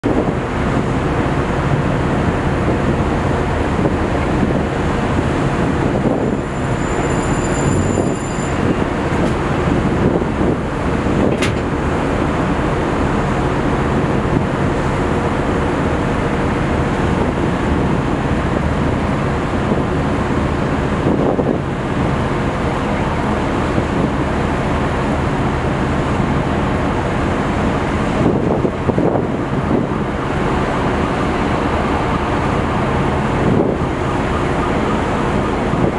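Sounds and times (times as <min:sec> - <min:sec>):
heavy machinery rumble: 0:00.0 - 0:35.9
high-pitched squeal: 0:06.4 - 0:08.7.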